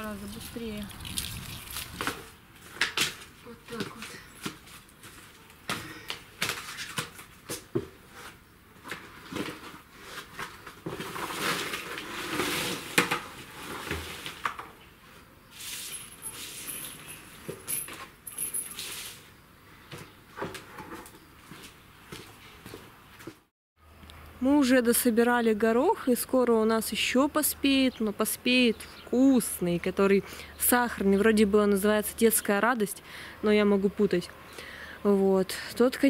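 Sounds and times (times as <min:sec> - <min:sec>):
plastic bucket and crates clattering: 0:08.9 - 0:14.8.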